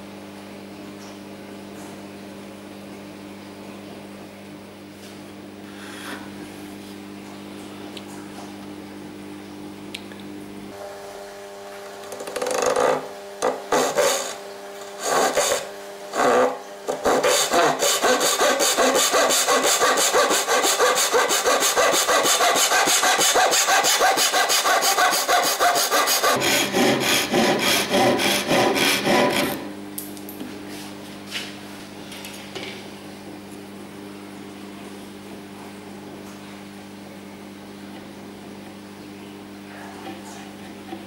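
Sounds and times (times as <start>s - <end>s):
hand saw cutting wood: 12.5s - 29.7s.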